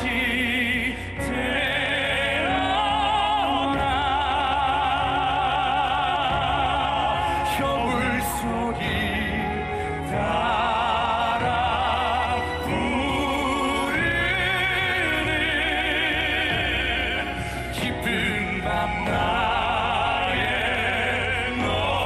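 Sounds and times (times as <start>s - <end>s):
man singing operatically: 0.0s - 22.0s
musical accompaniment: 0.0s - 22.0s.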